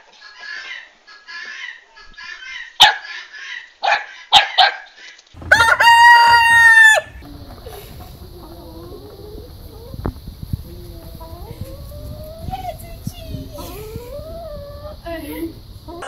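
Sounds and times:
rooster crowing: 0:05.4 - 0:16.0
steady low rumble: 0:05.4 - 0:16.0.

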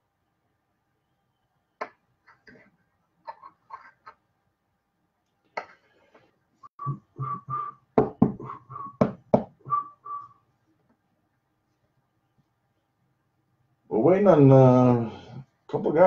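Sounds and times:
person whistling: 0:06.7 - 0:10.4.

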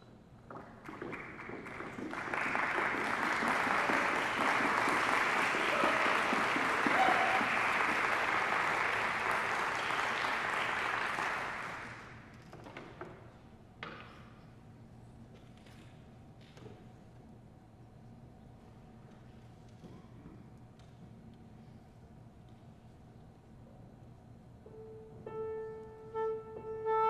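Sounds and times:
audience applause: 0:00.8 - 0:12.2.

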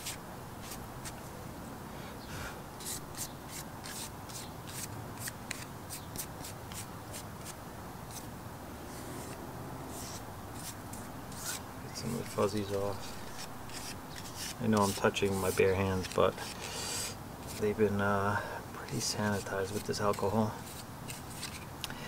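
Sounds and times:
hands rubbing plastic: 0:09.0 - 0:17.7, 0:18.9 - 0:21.7.

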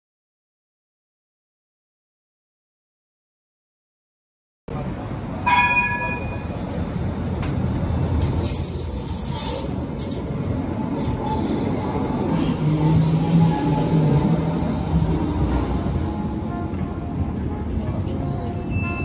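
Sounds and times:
tram wheels rumbling on rails: 0:04.7 - 0:19.0
high-pitched wheel squeal: 0:08.0 - 0:15.0.

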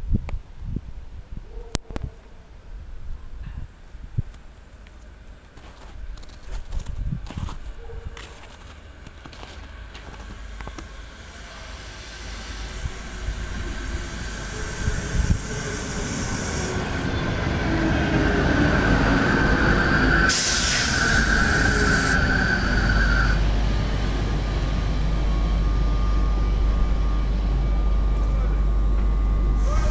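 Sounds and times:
electric train passing: 0:08.8 - 0:29.9
loud burst of hiss: 0:11.0 - 0:17.0, 0:20.3 - 0:22.3, 0:29.6 - 0:29.9
high-pitched wheel squeal: 0:19.4 - 0:23.4.

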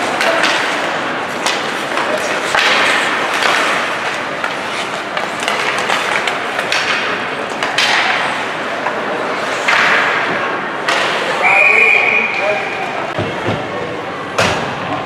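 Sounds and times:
skates scraping on ice: 0:00.0 - 0:11.4
hockey sticks and puck clacking: 0:00.0 - 0:13.7.

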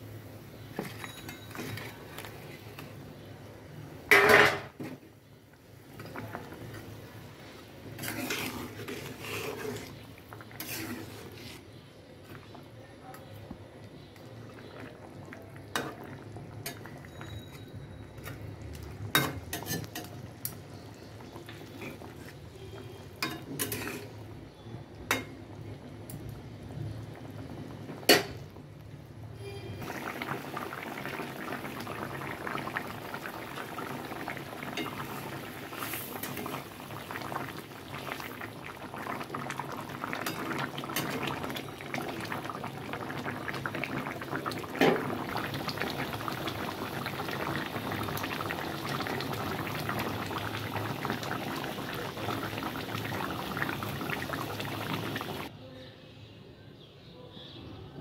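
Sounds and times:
curry bubbling and sputtering: 0:05.2 - 0:28.8, 0:29.8 - 0:55.5
metal spatula stirring in pan: 0:07.9 - 0:10.0, 0:10.6 - 0:11.8, 0:23.2 - 0:24.2.

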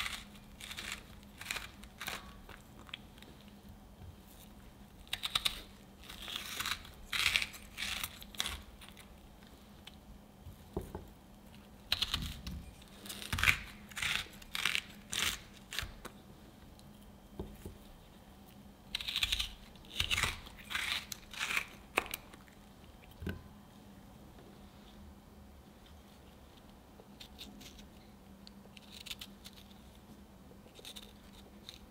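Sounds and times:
melon baller scraping fruit: 0:00.0 - 0:03.5, 0:04.2 - 0:09.1.

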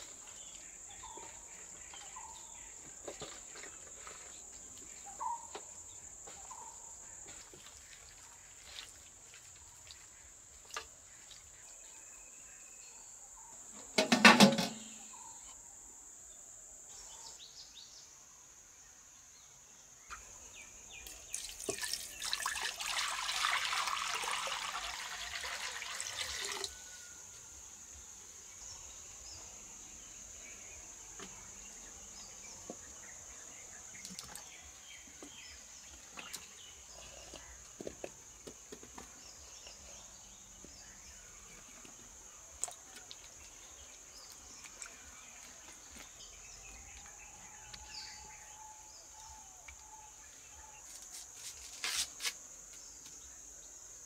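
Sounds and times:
small splashes and knocks: 0:21.0 - 0:26.8, 0:42.6 - 0:43.6
water pouring into bowl: 0:21.1 - 0:26.8.

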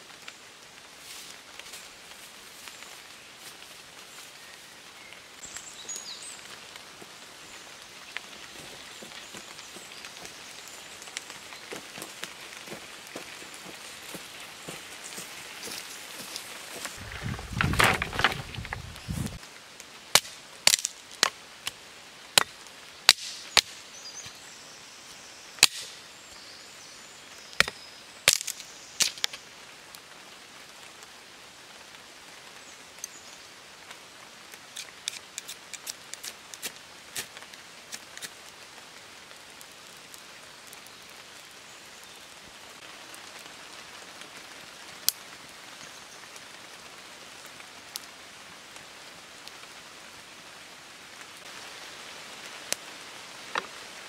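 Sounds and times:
dry sticks snapping: 0:08.1 - 0:19.4, 0:20.1 - 0:21.8, 0:23.1 - 0:23.8, 0:25.6 - 0:25.9, 0:27.6 - 0:29.4, 0:34.7 - 0:38.4.

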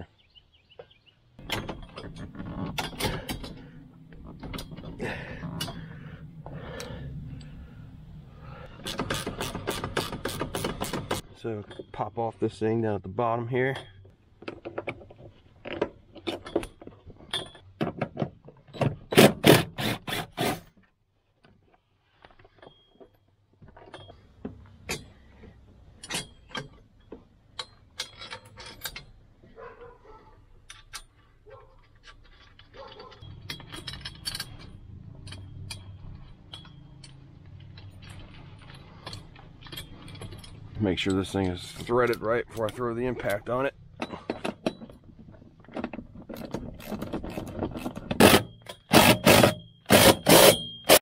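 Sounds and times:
metallic rattles of bolts: 0:01.4 - 0:07.6, 0:08.5 - 0:12.2, 0:22.3 - 0:51.0
scrapes: 0:21.6 - 0:48.5.

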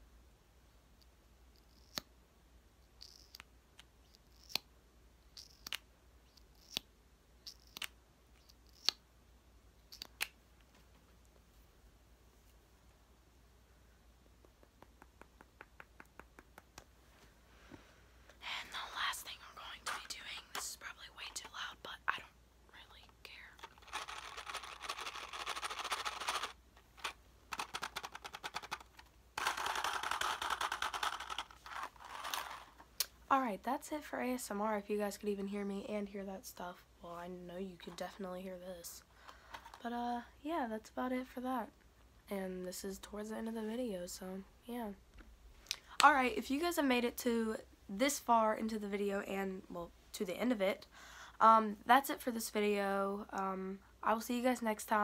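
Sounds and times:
mouth clicks and lip smacks: 0:14.2 - 0:17.0
soft hisses: 0:16.8 - 0:24.4.

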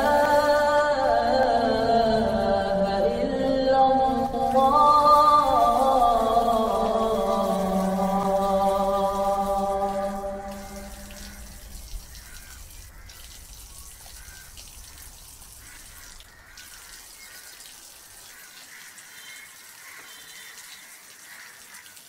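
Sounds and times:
tap water splashing over hands: 0:04.4 - 0:22.0.

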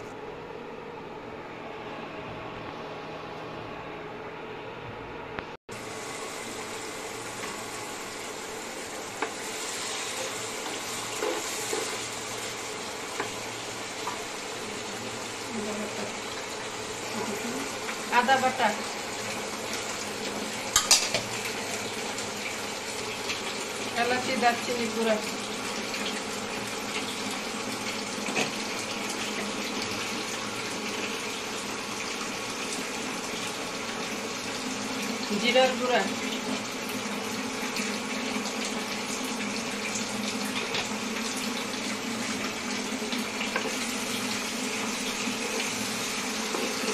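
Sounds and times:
curry sizzling in frying pan: 0:05.7 - 0:46.9.

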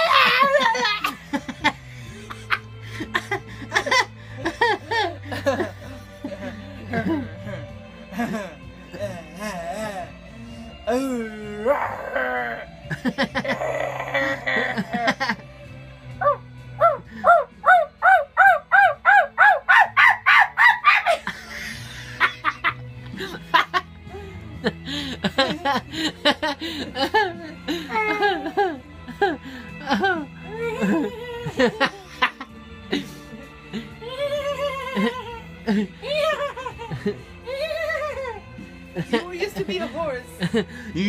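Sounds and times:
young woman laughing hard: 0:00.0 - 0:07.5, 0:12.9 - 0:15.4, 0:20.0 - 0:23.8, 0:24.6 - 0:33.2, 0:33.8 - 0:39.1.

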